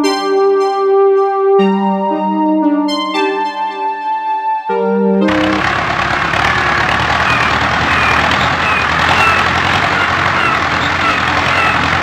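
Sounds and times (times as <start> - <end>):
vehicle engine running: 5.3 - 12.0
faint high chirps: 7.2 - 11.8.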